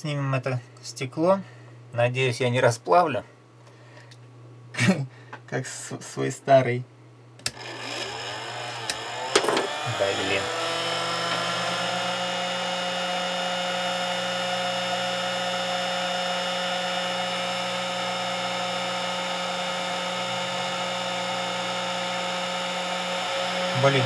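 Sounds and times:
heat gun fan whine: 7.3 - 24.0.

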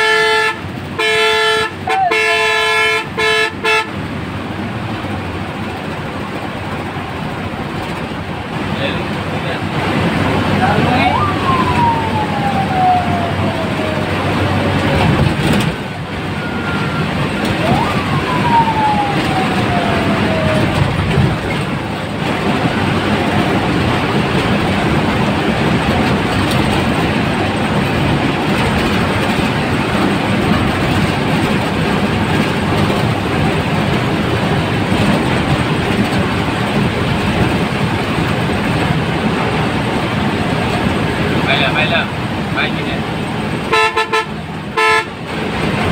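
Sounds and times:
bus engine and road noise: 0.0 - 45.9
long falling tone: 11.0 - 15.1, 16.2 - 21.1.

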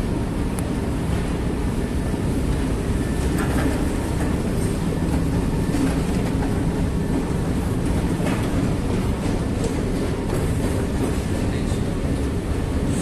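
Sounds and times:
escalator rumbling: 0.0 - 13.0
escalator steps clicking: 3.1 - 11.9.

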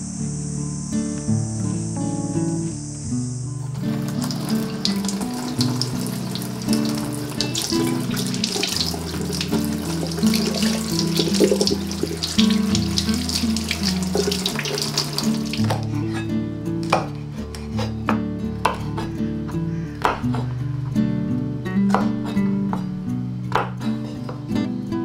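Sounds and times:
kitchen tap running: 3.7 - 15.8
water splashing over beans and hands: 3.7 - 15.9.

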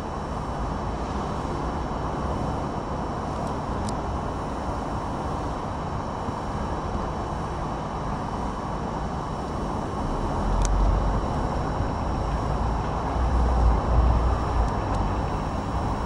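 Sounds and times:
tram rumble: 10.1 - 16.0.

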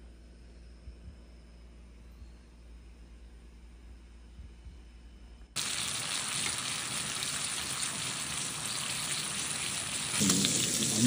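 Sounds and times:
meat sizzling: 5.6 - 11.0.

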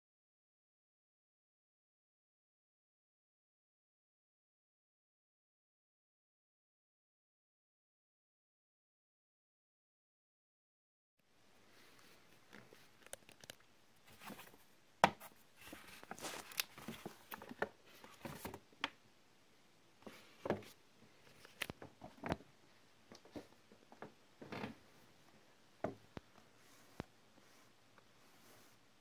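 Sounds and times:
paper bag rustling: 15.6 - 18.6.

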